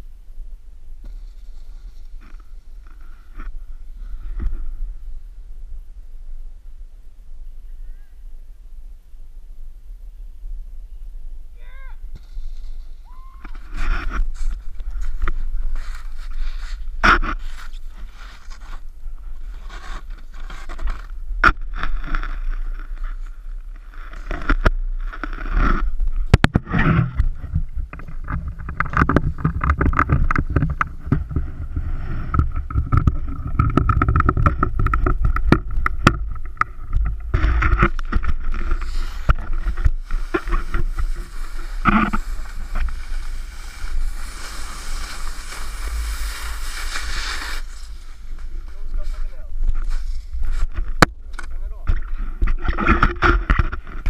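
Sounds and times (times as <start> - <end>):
wind rumbling on microphone: 0.0 - 54.0
snowboard scraping over snow: 1.0 - 5.3, 11.6 - 21.2, 21.9 - 51.0.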